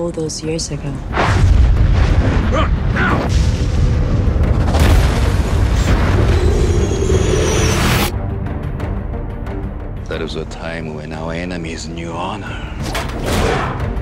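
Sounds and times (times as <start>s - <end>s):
atomic bomb blast boom: 3.2s - 8.1s.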